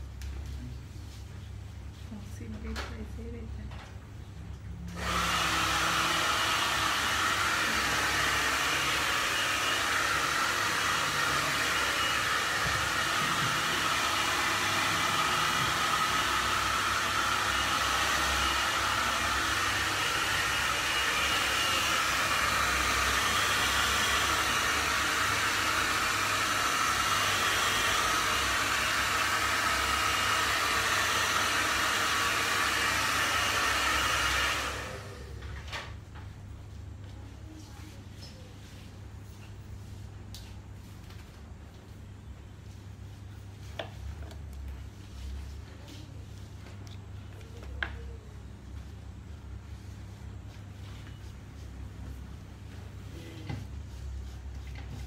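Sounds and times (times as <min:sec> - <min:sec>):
hair dryer blowing: 0:04.9 - 0:35.4.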